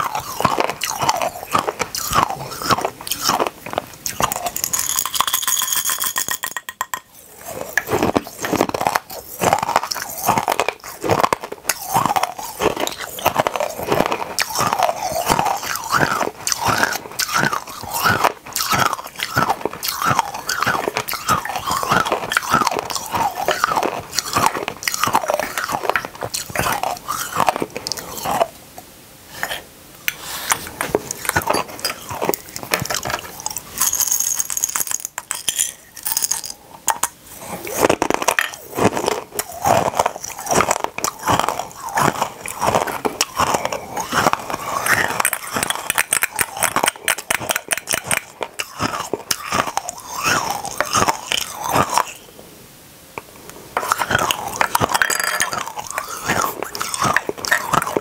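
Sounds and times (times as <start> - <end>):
hard candies crunching: 0.0 - 28.6, 29.3 - 52.2, 53.2 - 58.0
glass bottles clinking: 4.5 - 7.1.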